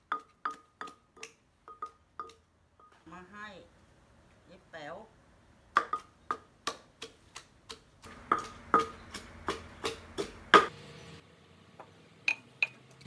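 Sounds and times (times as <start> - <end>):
pestle pounding in mortar: 0.0 - 2.4, 5.7 - 10.7.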